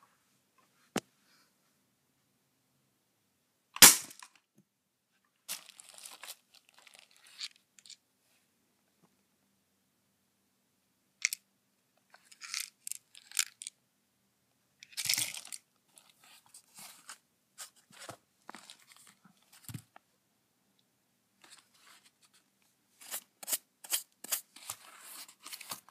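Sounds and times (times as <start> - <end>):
scraping handling noises: 23.0 - 25.9.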